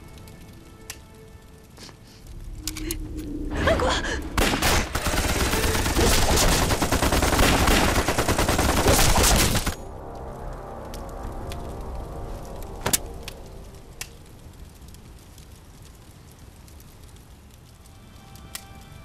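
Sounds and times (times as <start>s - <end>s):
rapid gunfire volley: 4.4s - 9.7s.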